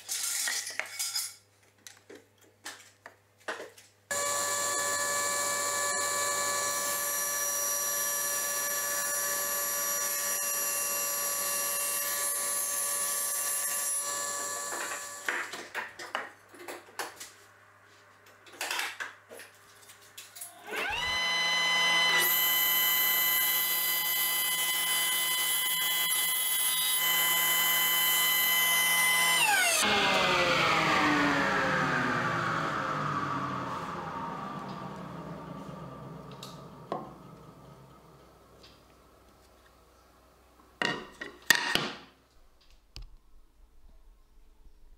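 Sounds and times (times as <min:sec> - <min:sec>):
table saw motor running: 0:04.1 - 0:15.2, 0:20.6 - 0:38.4.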